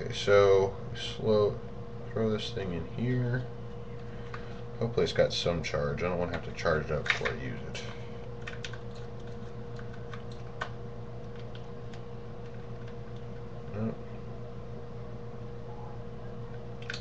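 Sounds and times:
low electrical hum: 0.0s - 17.0s
fingers clicking and tapping plastic: 8.4s - 13.3s.

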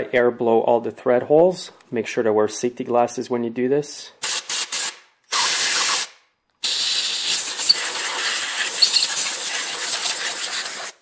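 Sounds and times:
compressed air blow gun hissing: 5.4s - 11.0s.

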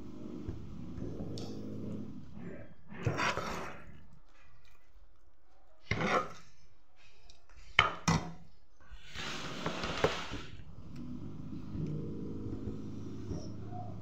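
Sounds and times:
short scraping rubs: 9.0s - 11.6s.

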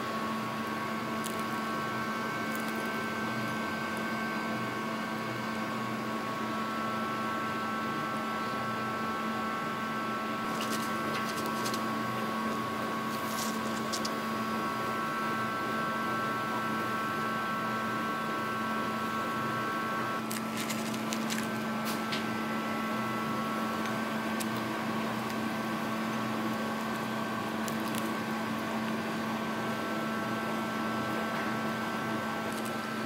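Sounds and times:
steady machine hum: 0.0s - 33.0s.

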